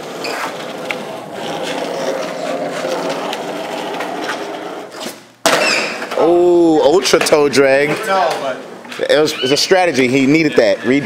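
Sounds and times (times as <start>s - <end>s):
skateboard wheels rolling: 0.0s - 6.3s.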